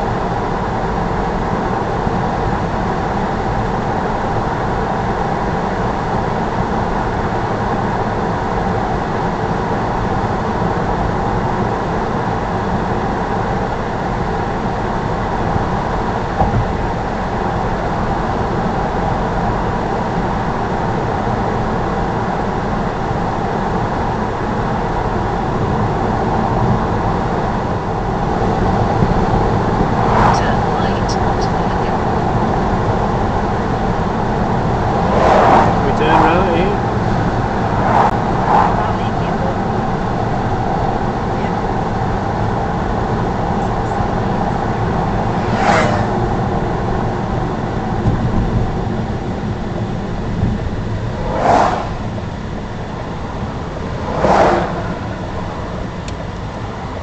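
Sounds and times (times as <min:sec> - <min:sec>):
car engine noise: 0:00.0 - 0:57.0
wind noise: 0:21.9 - 0:57.0.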